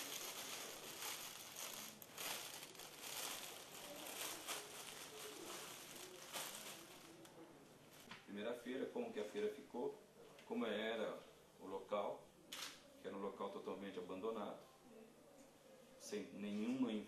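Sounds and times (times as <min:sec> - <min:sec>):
plastic bags crinkling: 0:00.0 - 0:08.1.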